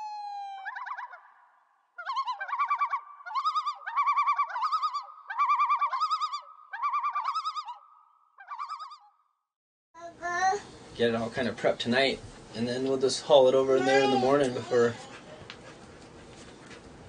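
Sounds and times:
loon tremolo calls: 0:00.0 - 0:09.1.

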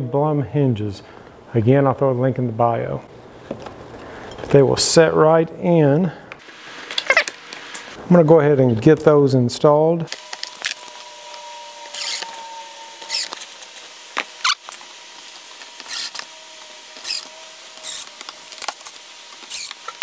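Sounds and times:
cordless drill whirring: 0:10.1 - 0:20.0.

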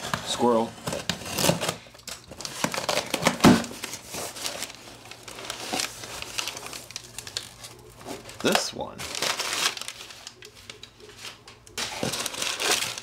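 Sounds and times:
tape and cardboard flaps rustling: 0:00.0 - 0:04.8, 0:08.0 - 0:13.0
packing paper crinkling: 0:00.0 - 0:13.0.

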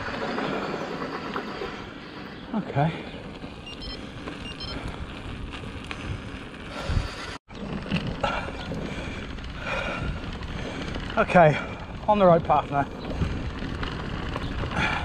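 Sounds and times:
bike knocking and rattling: 0:00.0 - 0:15.0
bike tyres on rough track: 0:00.0 - 0:15.0
wind on microphone: 0:04.4 - 0:15.0.

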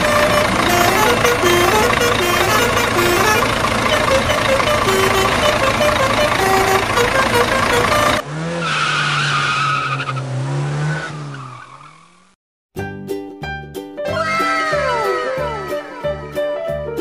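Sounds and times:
car engine hum with whine: 0:00.0 - 0:12.4
busy music with stepping melody: 0:12.8 - 0:17.0.

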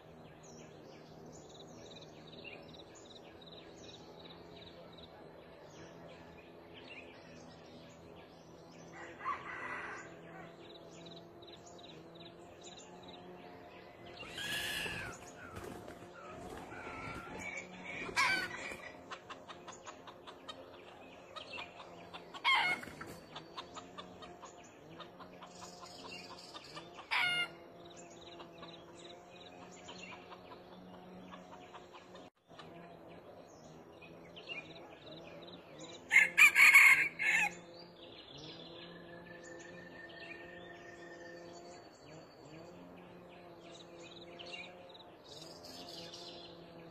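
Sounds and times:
rooster crowing: 0:08.9 - 0:10.6, 0:36.1 - 0:37.6.

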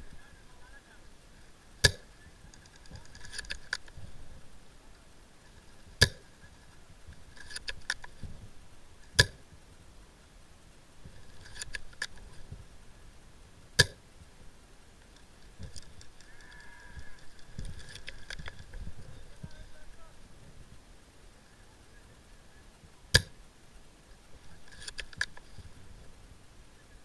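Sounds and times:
rustling: 0:00.0 - 0:10.0, 0:11.0 - 0:13.1, 0:13.7 - 0:22.0, 0:24.1 - 0:26.3
sharp loud clicks: 0:09.1 - 0:09.4, 0:13.8 - 0:14.0, 0:23.1 - 0:23.4.

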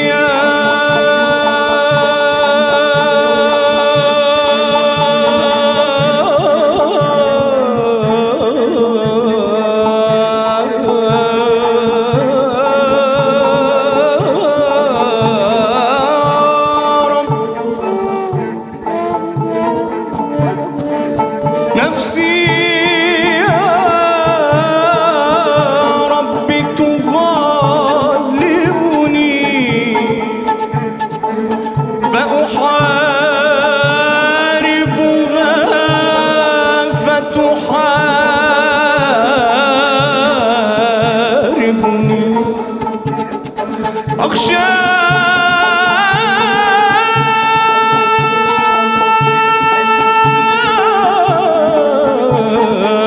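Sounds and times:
soft steady beat: 0:15.0 - 0:34.2.

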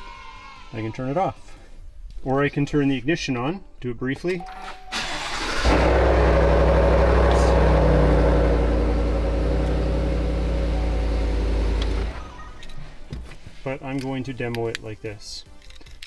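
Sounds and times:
truck engine starting and idling: 0:04.7 - 0:12.6.

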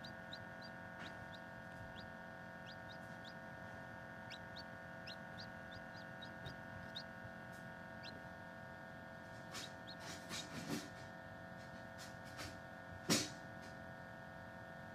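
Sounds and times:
chick peeping: 0:00.0 - 0:08.2, 0:09.4 - 0:10.8
incubator hum: 0:00.0 - 0:11.7.

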